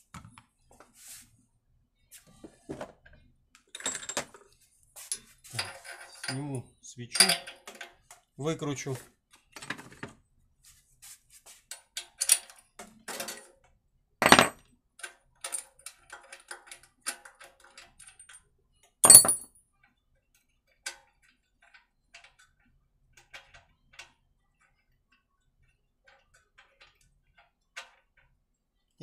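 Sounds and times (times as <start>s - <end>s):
metal tools clicking and clanking: 5.0s - 8.2s, 14.2s - 18.4s, 19.0s - 19.5s.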